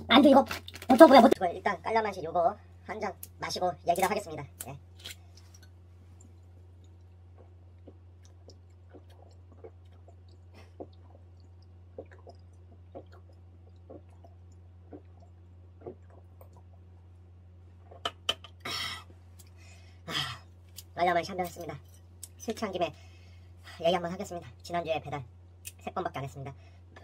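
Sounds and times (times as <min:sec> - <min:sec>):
low hum: 0:00.0 - 0:27.0
gulping swallows: 0:06.8 - 0:16.9.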